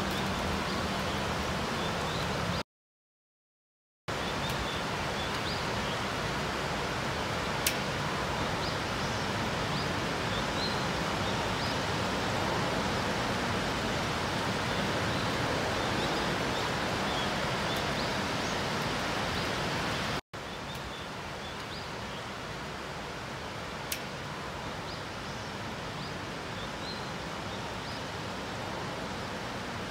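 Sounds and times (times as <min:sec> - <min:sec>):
rain falling: 0:00.0 - 0:02.6, 0:04.4 - 0:24.9.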